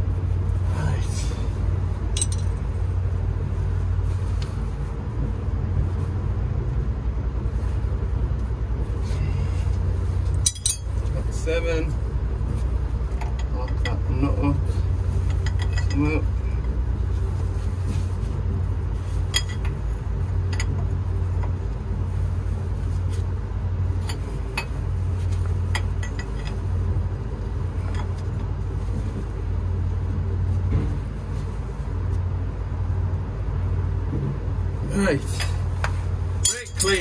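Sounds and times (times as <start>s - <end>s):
metal tools clinking: 2.2s - 2.6s, 10.4s - 11.2s, 15.3s - 16.0s, 36.4s - 37.0s.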